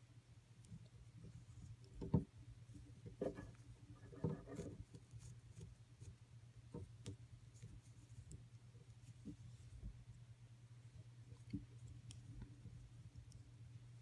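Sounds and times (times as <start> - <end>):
steady low hum: 0.0 - 14.0
crochet hook and yarn rustling: 0.6 - 10.0.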